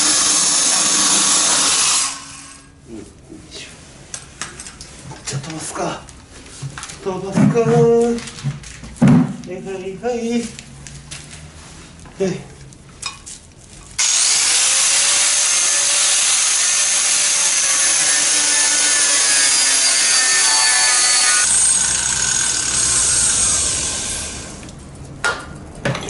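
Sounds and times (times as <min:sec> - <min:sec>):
angle grinder cutting steel: 0:00.0 - 0:02.7, 0:14.0 - 0:24.6.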